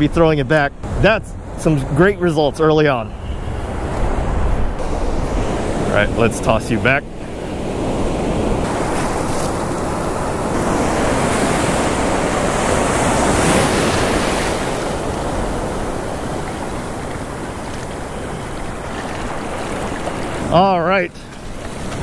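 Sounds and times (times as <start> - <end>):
surf breaking over shallows: 4.8 - 22.0.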